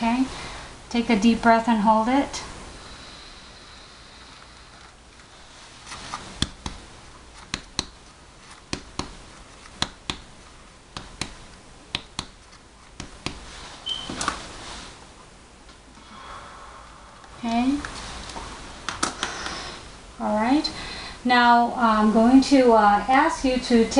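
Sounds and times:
finger tapping on back: 0:10.9 - 0:12.4.

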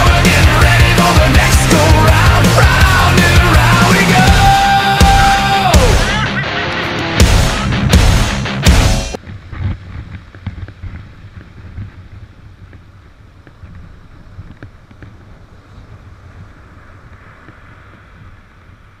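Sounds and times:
wind rumble on microphone: 0:09.1 - 0:19.0
waves washing over shingle: 0:09.4 - 0:19.0.

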